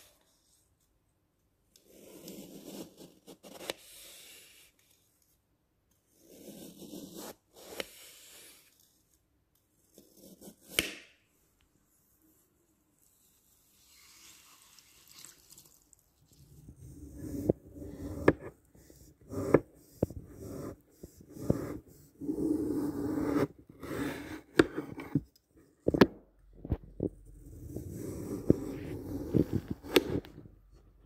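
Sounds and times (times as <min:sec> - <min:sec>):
knife cutting into foam block: 0:01.8 - 0:04.7, 0:06.1 - 0:08.7, 0:09.9 - 0:11.1, 0:16.7 - 0:25.2.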